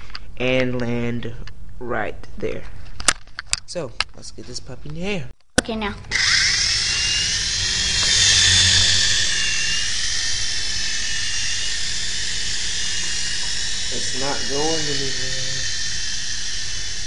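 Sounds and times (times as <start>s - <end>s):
toy helicopter motor whining: 6.0s - 17.0s.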